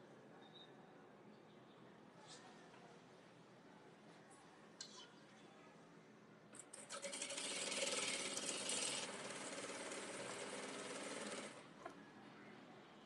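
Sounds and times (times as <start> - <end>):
sewing machine stitching: 6.6 - 11.6.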